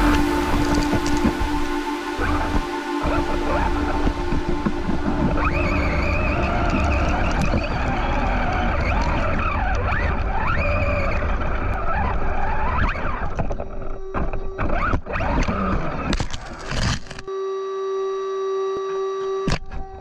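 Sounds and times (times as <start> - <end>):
electric motor whining: 0.0 - 20.0
tyres rumbling on gravel: 3.6 - 13.3.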